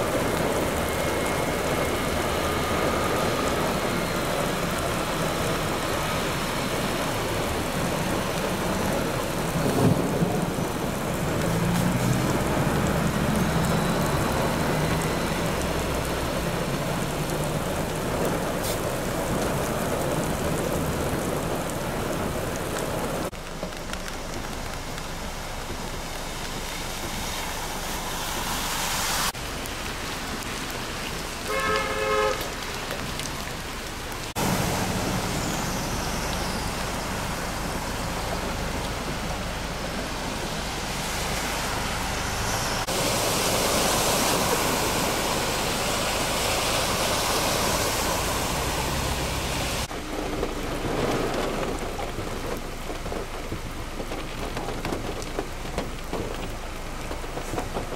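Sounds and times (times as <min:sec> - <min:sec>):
heavy rain: 0:00.0 - 0:57.9
vehicles splashing through floodwater: 0:00.0 - 0:57.9
car horn honking: 0:31.5 - 0:32.7.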